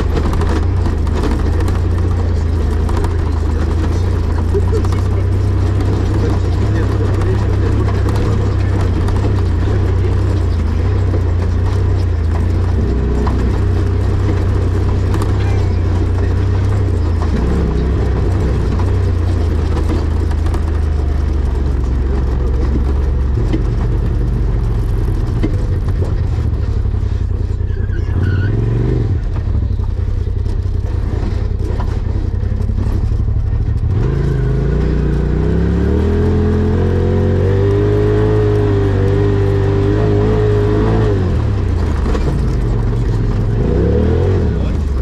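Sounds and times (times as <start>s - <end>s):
rally car engine revving: 0.0s - 45.0s.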